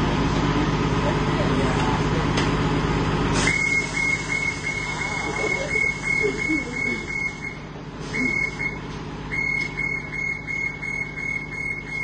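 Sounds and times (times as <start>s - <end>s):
bus engine idling hum: 0.0s - 12.0s
rapid high warning beeps: 3.5s - 12.0s.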